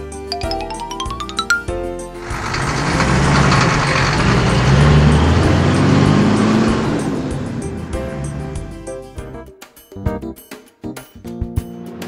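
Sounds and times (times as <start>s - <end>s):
light music: 0.0s - 2.4s, 3.6s - 12.0s
truck revving and driving off: 2.1s - 9.2s.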